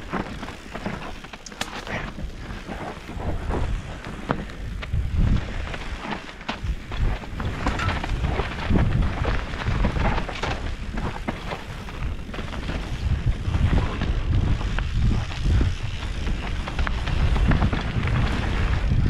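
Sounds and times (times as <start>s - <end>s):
bike rattling and clicking: 0.0s - 19.0s
tyres rolling over dirt: 0.0s - 19.0s
wind buffeting microphone: 0.0s - 19.0s.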